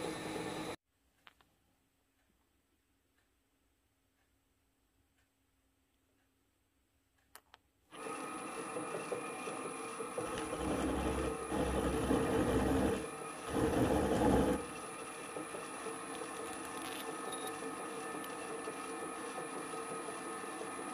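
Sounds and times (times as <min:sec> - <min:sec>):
clicks: 0:07.2 - 0:07.7
drill press humming: 0:07.9 - 0:20.9
end mill cutting metal: 0:08.0 - 0:20.9.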